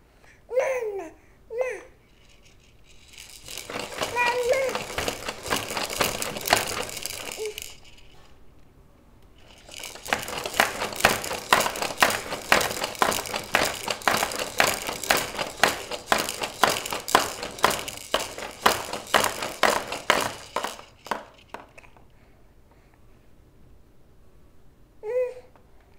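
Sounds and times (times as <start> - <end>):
plastic toy rattling and clacking: 2.1 - 8.3, 9.4 - 22.0.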